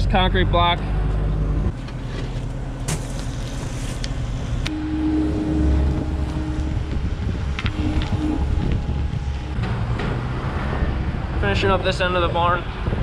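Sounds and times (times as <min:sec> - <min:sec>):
motor running steadily: 0:04.2 - 0:10.2.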